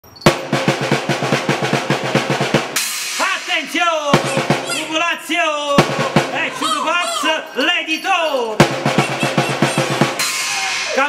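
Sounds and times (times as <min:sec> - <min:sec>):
cymbal crash: 0:00.3 - 0:04.7, 0:08.6 - 0:11.0
rapid drum beat: 0:00.3 - 0:07.3, 0:08.6 - 0:11.0
man calling in swooping tones: 0:03.3 - 0:11.0.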